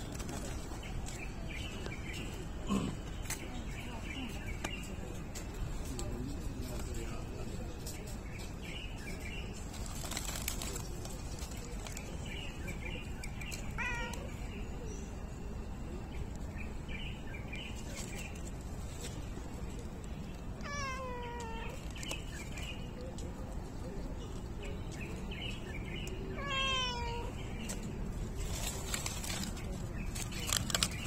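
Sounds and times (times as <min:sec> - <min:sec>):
cat meowing: 0:13.8 - 0:14.3, 0:20.6 - 0:21.8, 0:26.4 - 0:27.4.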